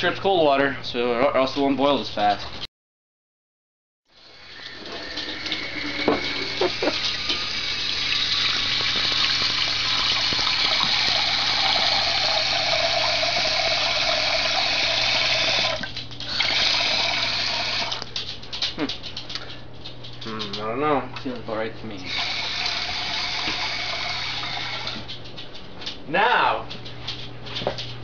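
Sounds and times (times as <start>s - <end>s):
faucet running into metal pot: 4.2s - 18.0s, 22.0s - 25.0s.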